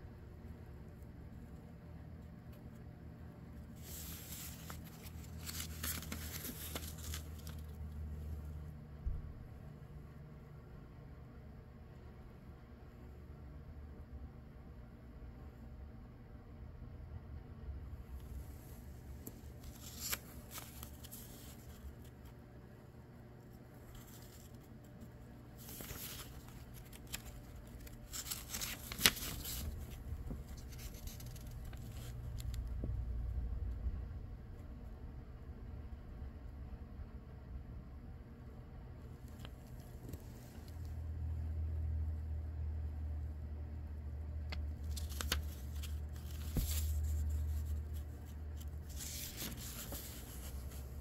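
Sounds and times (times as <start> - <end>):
steady low hum: 0.0 - 51.0
book page turning: 3.7 - 8.1, 18.5 - 22.4, 23.5 - 32.7, 44.5 - 51.0.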